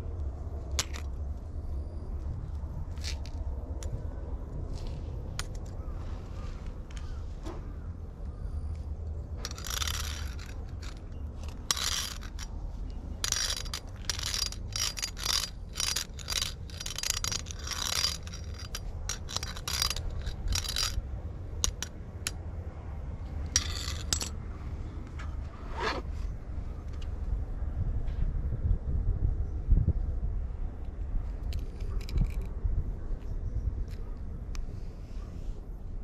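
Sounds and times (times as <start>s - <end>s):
metal scratcher scraping asphalt: 9.3s - 21.0s, 23.5s - 24.3s, 25.2s - 26.3s.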